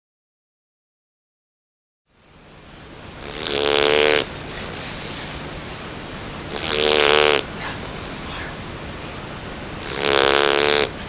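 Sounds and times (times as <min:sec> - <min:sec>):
puppy snoring: 0:03.2 - 0:05.4, 0:06.5 - 0:09.2, 0:09.8 - 0:11.0.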